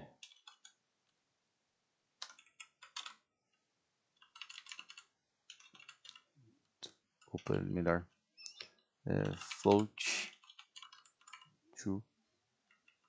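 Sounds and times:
typing on keyboard: 0.2s - 0.8s, 2.2s - 3.2s, 4.2s - 6.3s, 9.2s - 11.5s, 12.7s - 13.0s.

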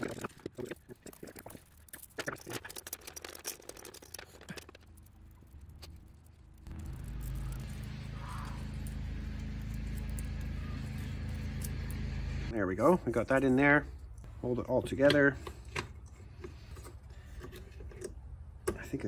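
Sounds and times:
steady low hum: 4.8s - 18.6s.

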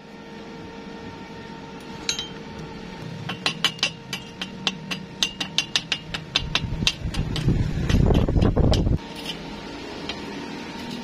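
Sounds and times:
chipping hammer tapping metal: 3.3s - 9.0s.

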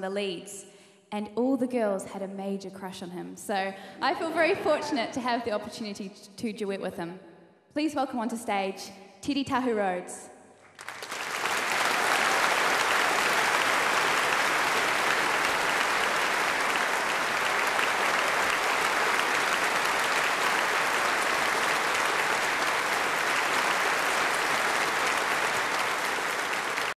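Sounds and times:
audience applauding: 10.6s - 27.0s.

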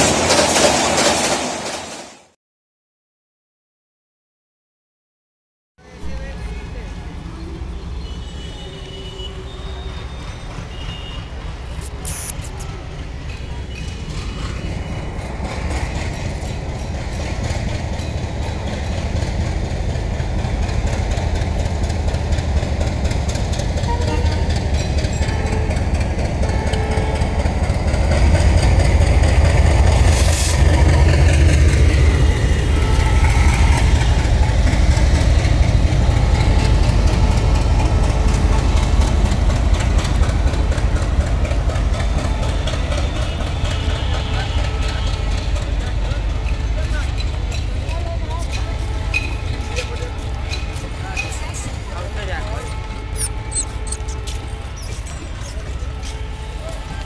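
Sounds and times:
diesel locomotive rumbling: 5.8s - 57.0s
short hiss: 11.8s - 12.6s.

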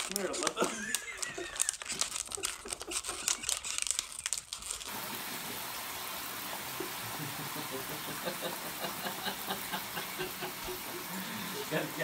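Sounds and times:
plastic wrapping crinkling: 0.0s - 5.0s
steady hiss: 4.9s - 12.0s.

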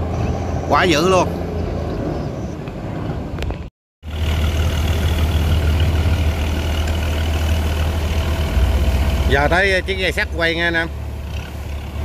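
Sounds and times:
boat diesel engine humming: 4.0s - 12.0s
propeller churning water: 4.0s - 12.0s.

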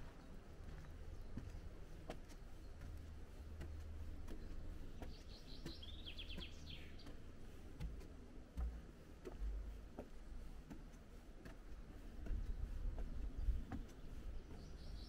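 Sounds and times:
songbird singing with trill: 4.3s - 7.2s, 12.4s - 15.0s.

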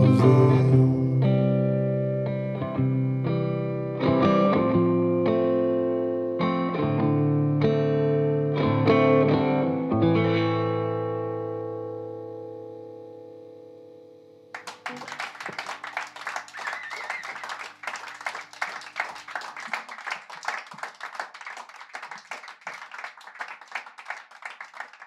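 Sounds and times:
guitar chord ringing: 9.6s - 14.5s
audience applauding: 14.6s - 25.0s.

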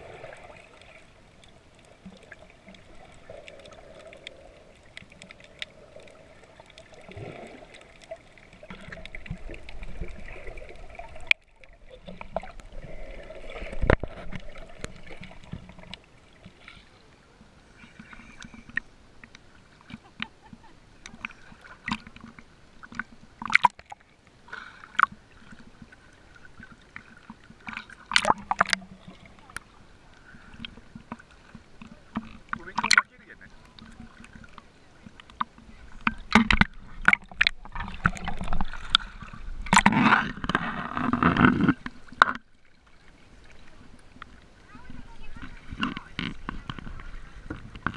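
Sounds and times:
underwater sloshing and bubbling: 0.0s - 47.9s
water splashing and lapping: 0.0s - 47.9s.

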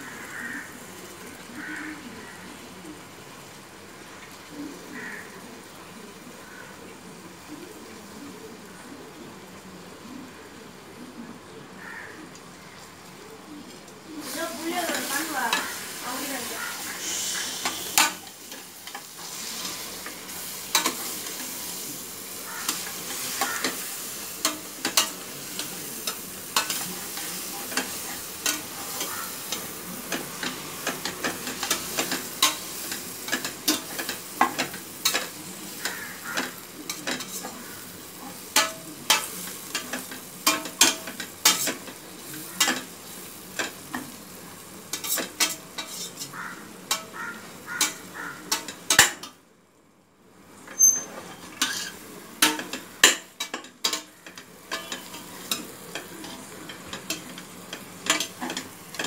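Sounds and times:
food sizzling in oil: 0.0s - 49.4s, 50.4s - 59.0s
metal spatula scraping pot: 44.9s - 47.2s, 50.7s - 59.0s.

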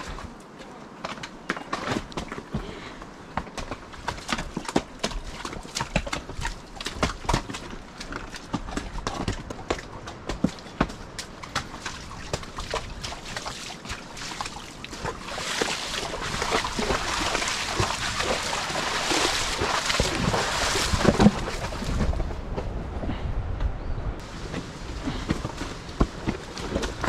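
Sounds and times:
horse hooves splashing in mud: 0.0s - 22.8s, 24.2s - 27.0s.

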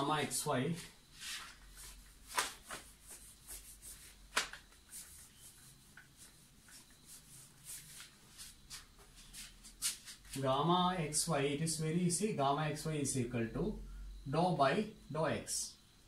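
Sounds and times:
whiteboard being wiped: 0.7s - 10.4s.

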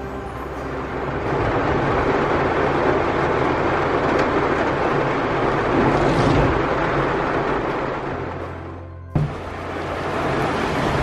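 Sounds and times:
heavy rain drumming on car roof: 0.0s - 11.0s.

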